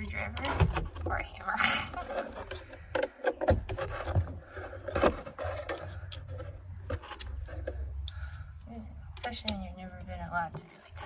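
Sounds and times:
metal clicks and scrapes: 0.0s - 8.4s.

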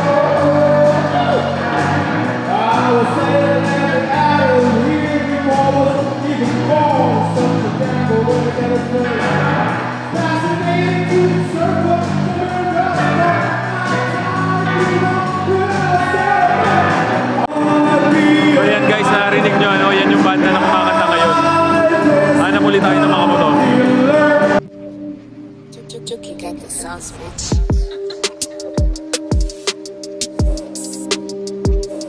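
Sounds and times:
man singing: 0.0s - 1.6s, 2.5s - 24.7s
drums: 27.4s - 32.0s.

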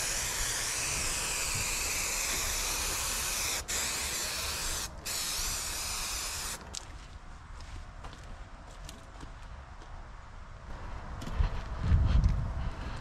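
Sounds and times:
spray hissing: 0.0s - 6.6s.

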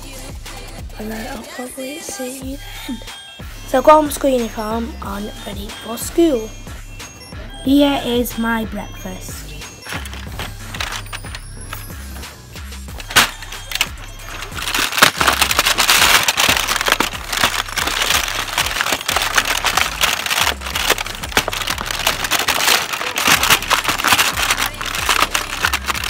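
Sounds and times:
background music: 0.0s - 26.0s
cardboard doors clicking: 9.8s - 11.9s
cardboard crackling: 9.8s - 12.3s, 12.9s - 26.0s.

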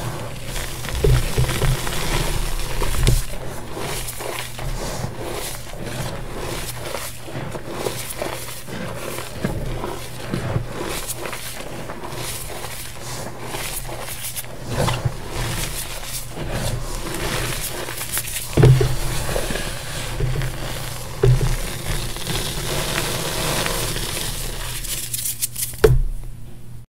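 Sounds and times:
dull thumps: 0.0s - 6.7s, 14.7s - 24.9s, 25.8s - 26.6s
chalk crunching in hands: 0.0s - 25.8s.

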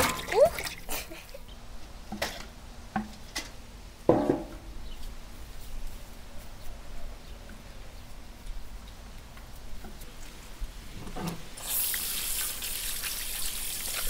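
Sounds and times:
metal basins knocking on wood: 4.1s - 4.7s.

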